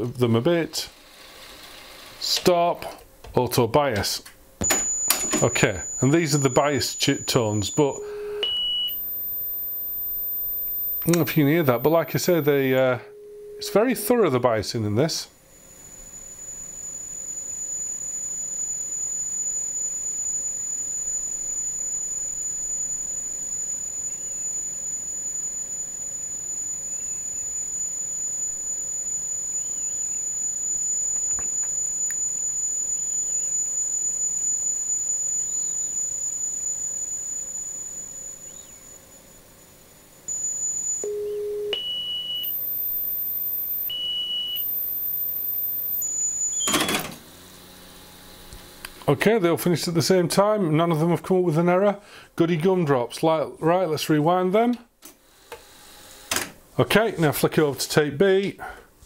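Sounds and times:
short tones at changing pitches: 0:04.6 - 0:14.4, 0:40.3 - 0:46.8
long high-pitched tone: 0:04.6 - 0:50.8.

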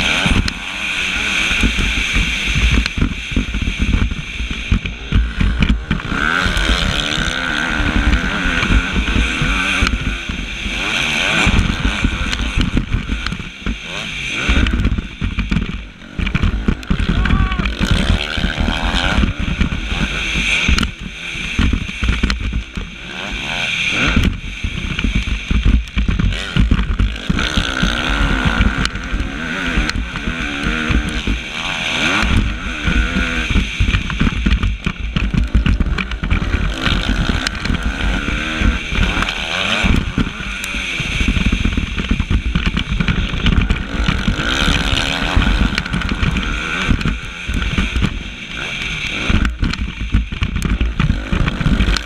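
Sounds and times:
motocross bike engine revving: 0:00.0 - 0:52.0.

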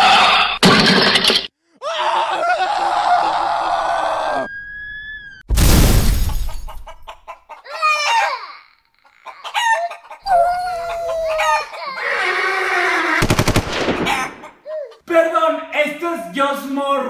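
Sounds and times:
squawking crowing calls: 0:06.7 - 0:14.7.

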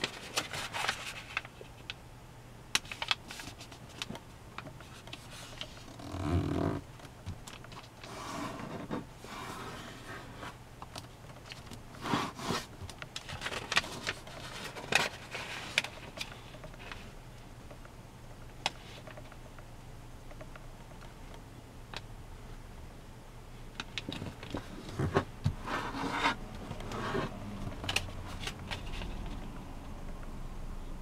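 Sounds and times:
paper rustling and sliding: 0:00.0 - 0:01.8, 0:04.8 - 0:05.9, 0:07.7 - 0:10.6, 0:11.5 - 0:17.1, 0:24.1 - 0:29.4
paper fold crackling: 0:00.0 - 0:02.0, 0:09.7 - 0:17.0.

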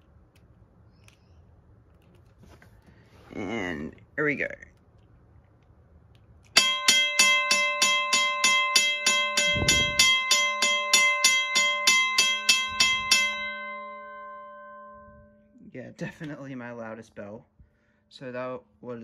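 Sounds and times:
railway crossing bell ringing: 0:06.6 - 0:15.6.

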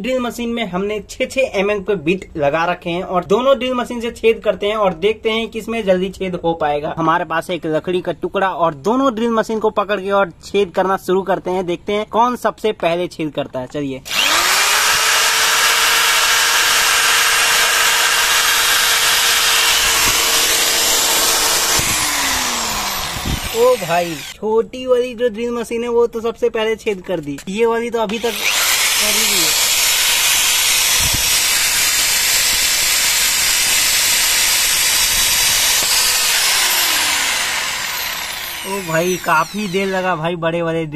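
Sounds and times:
drill bits cutting wood: 0:14.1 - 0:24.4, 0:28.1 - 0:40.2
electric drill motor whine: 0:14.1 - 0:24.4, 0:28.1 - 0:40.1.

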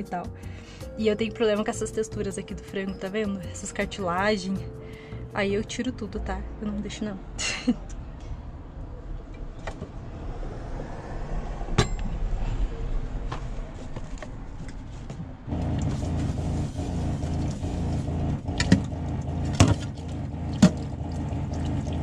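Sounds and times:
electric water pump humming: 0:15.5 - 0:22.0
tap water running: 0:19.6 - 0:22.0.

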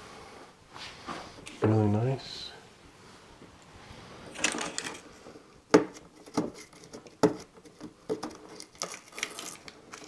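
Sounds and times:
plastic film crinkling: 0:08.3 - 0:10.0.

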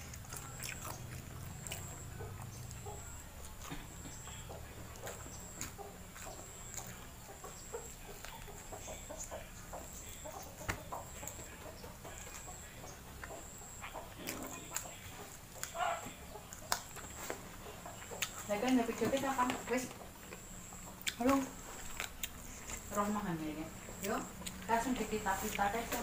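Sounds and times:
chewing and lip smacks: 0:00.0 - 0:23.0, 0:23.7 - 0:26.0
chickens clucking: 0:00.0 - 0:26.0.

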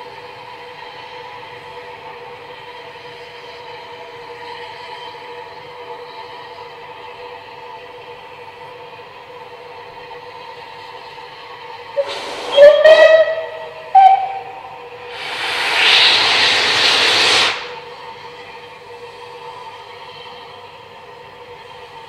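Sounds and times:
steam locomotive whistle: 0:12.0 - 0:17.8
steam hissing from drain cocks: 0:12.0 - 0:18.0.

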